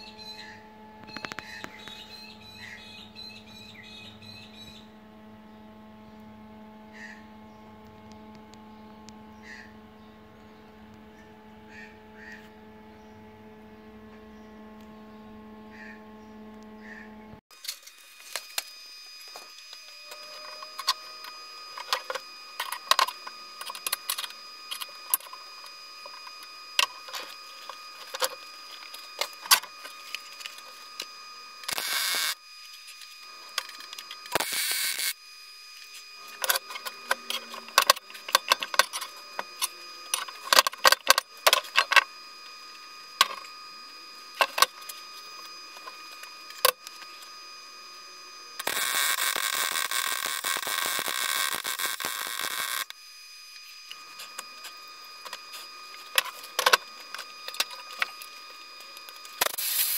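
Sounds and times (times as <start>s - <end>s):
faint steady high tone: 17.6s - 59.9s
hissing bursts: 59.4s - 59.9s.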